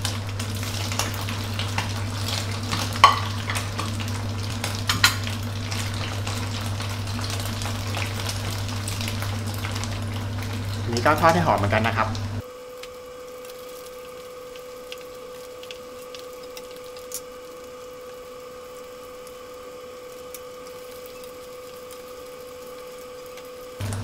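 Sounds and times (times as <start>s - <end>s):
faint pops of frying in oil: 0.0s - 9.8s.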